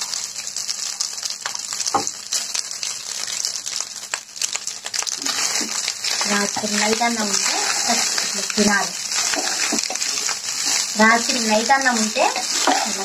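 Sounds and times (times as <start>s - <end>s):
rice sizzling in a pan: 0.0s - 13.0s
spatula scraping and tapping: 5.2s - 8.3s, 9.2s - 10.9s, 12.3s - 13.0s.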